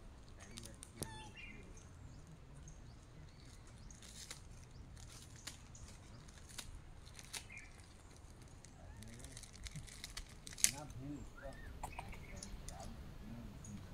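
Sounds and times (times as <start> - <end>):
sharp clicks and crackles: 0.2 - 2.0, 2.9 - 11.0.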